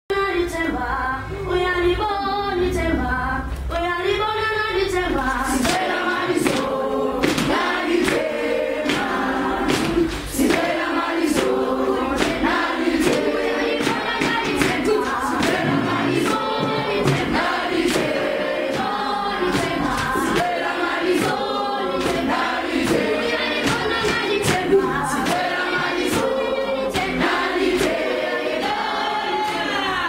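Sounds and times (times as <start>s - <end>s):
children singing in unison: 4.6s - 30.0s
sharp beats keeping time: 5.7s - 29.1s.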